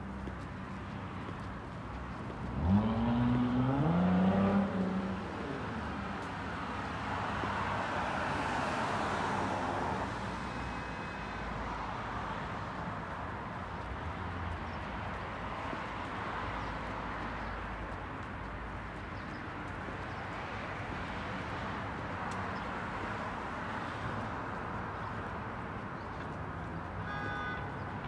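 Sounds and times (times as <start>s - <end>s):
car passing with tyre noise: 0.0s - 28.0s
road traffic passing: 0.0s - 28.0s
vehicle accelerating: 2.2s - 7.7s.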